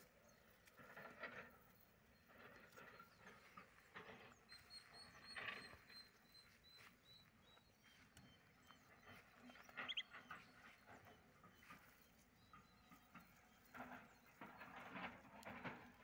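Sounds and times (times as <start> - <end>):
high chirps: 8.7 - 10.3.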